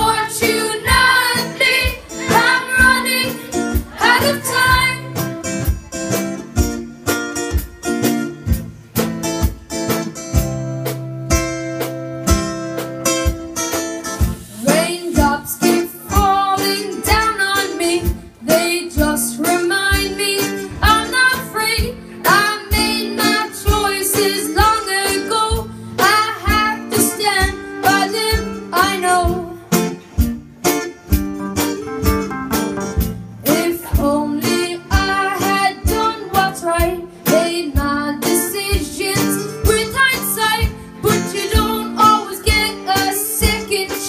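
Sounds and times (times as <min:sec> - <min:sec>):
boy singing: 0:00.0 - 0:05.2, 0:14.6 - 0:29.6, 0:33.5 - 0:44.0
guitar strumming: 0:00.0 - 0:44.0.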